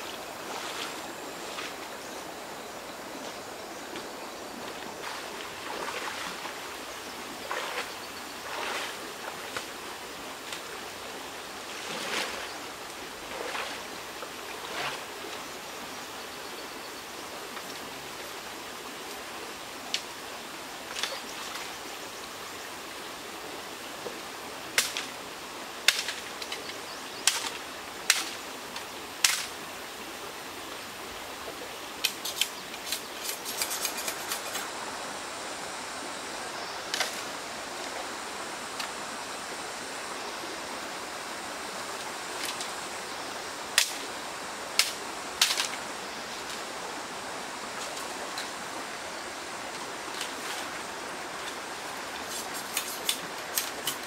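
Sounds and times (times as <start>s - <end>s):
wading through shallow water: 0.0s - 2.0s, 3.1s - 9.8s, 11.6s - 15.4s
stream water running: 0.0s - 54.0s.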